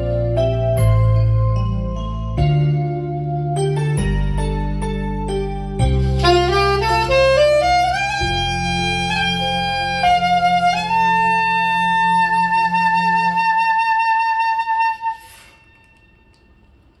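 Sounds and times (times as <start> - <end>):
low musical accompaniment: 0.0 - 17.0
soprano saxophone with vibrato: 6.0 - 16.0.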